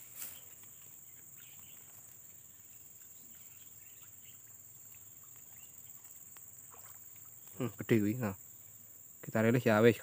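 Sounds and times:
insects droning: 0.0 - 10.0
swamp ambience: 0.0 - 10.0
faint ticks: 0.2 - 7.7.

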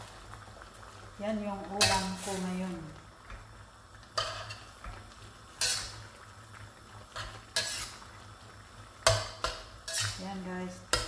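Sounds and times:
metal spatula scraping a wok: 5.6 - 6.0, 7.2 - 8.0, 9.1 - 10.3.

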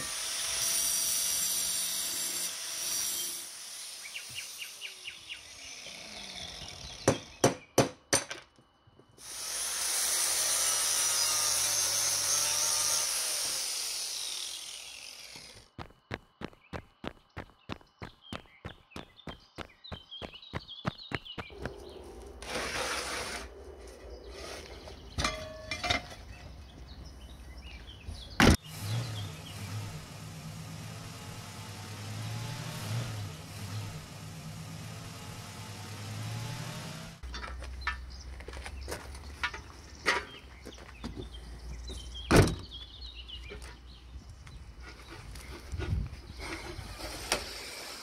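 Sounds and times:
cartoon car engine hum: 28.6 - 37.2.

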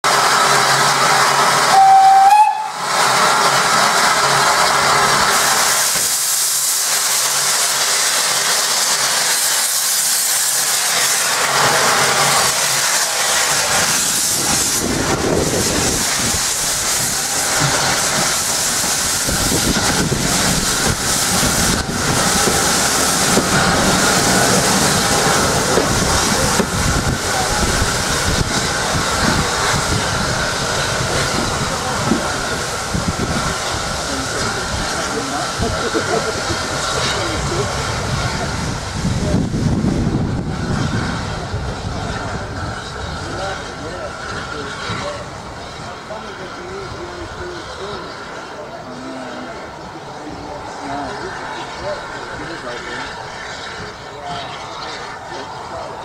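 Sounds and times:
steam engine exhaust beats: 0.1 - 56.0
steam hissing: 0.1 - 56.0
steam train whistle: 1.6 - 2.9.

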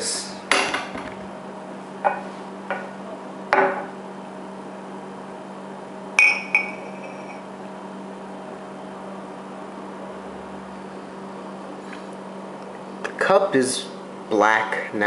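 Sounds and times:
steady low hum: 0.0 - 15.0
sharp glass clink: 6.2 - 7.4.

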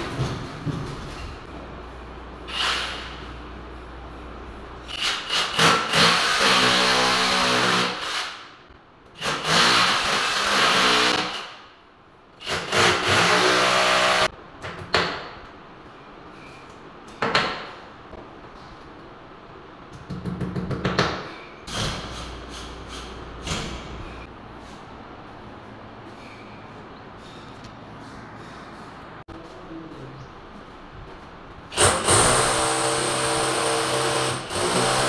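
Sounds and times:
electric drill boring into wall: 31.8 - 35.0.

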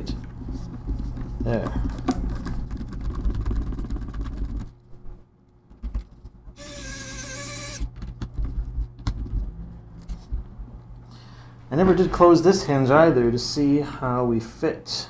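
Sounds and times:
short squeaky tone: 6.6 - 7.9.

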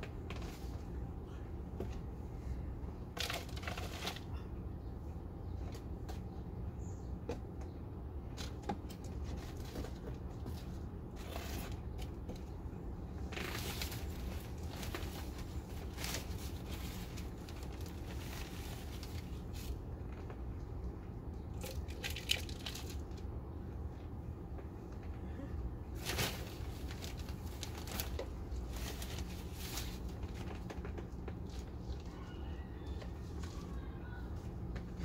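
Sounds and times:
soil rustling and crackling: 13.2 - 20.4, 25.9 - 31.8.

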